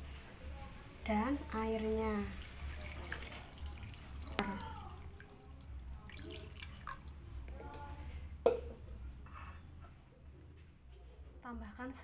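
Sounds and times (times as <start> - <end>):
water pouring and splashing: 1.5 - 7.3.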